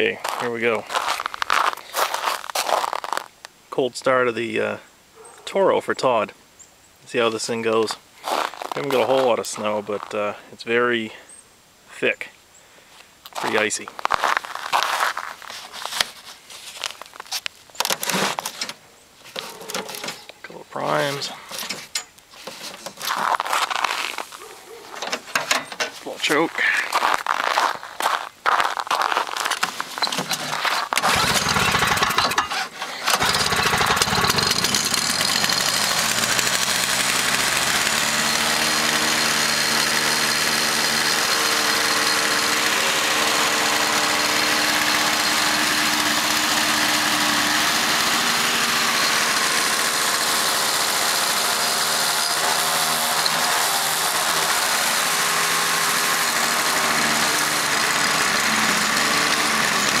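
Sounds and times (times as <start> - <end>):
snowblower engine starting: 17.8 - 20.3, 29.1 - 60.0.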